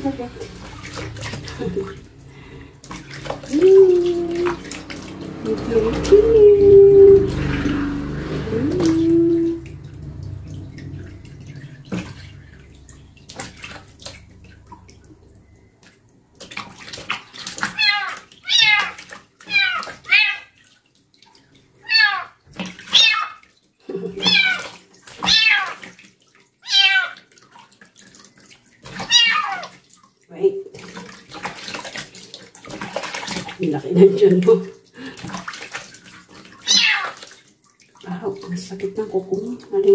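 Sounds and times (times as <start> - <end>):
water splashing softly: 0.0 - 39.9
kitten meowing: 17.7 - 20.5, 21.9 - 22.3, 22.9 - 23.4, 24.2 - 24.6, 25.2 - 25.8, 26.6 - 27.2, 29.0 - 29.6, 36.6 - 37.2.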